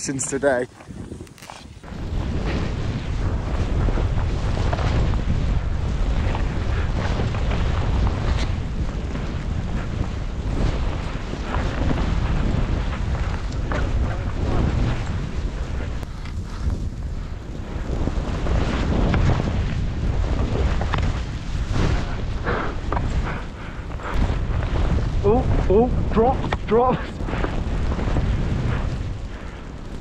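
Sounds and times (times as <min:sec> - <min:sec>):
wind buffeting microphone: 0:00.0 - 0:30.0.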